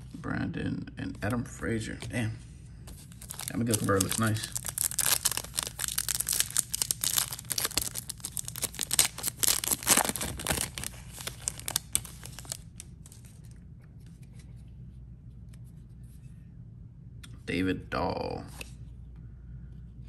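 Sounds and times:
card pack wrapper tearing and crinkling: 0:03.1 - 0:13.5.

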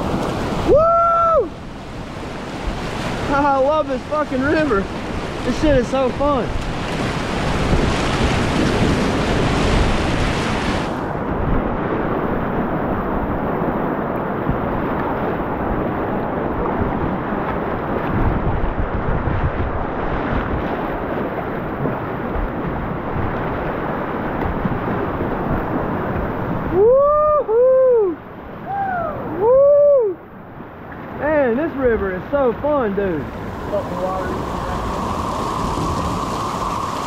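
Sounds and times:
whitewater rapids rushing: 0:00.0 - 0:11.1, 0:31.1 - 0:37.0
wind buffeting microphone: 0:00.0 - 0:37.0.

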